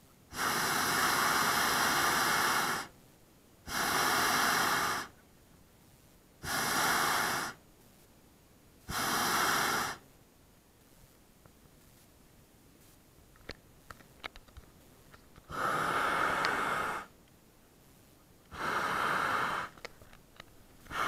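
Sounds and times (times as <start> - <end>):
propane burner roaring hiss: 0.0 - 3.0, 3.6 - 5.2, 6.4 - 7.6, 8.8 - 10.1, 15.5 - 17.2, 18.5 - 20.0.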